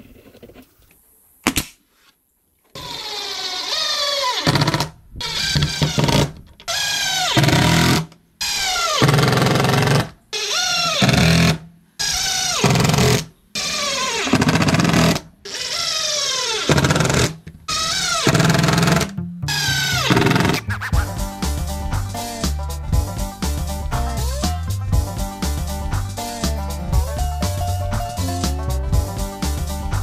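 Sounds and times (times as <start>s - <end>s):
cordless drill whining: 2.8s - 20.5s.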